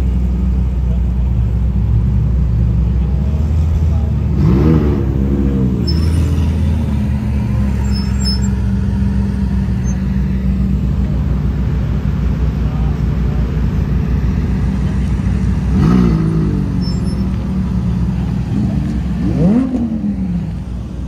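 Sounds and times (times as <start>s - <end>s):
car engine running: 0.0s - 21.0s
engine revving: 3.1s - 11.0s, 14.3s - 20.8s.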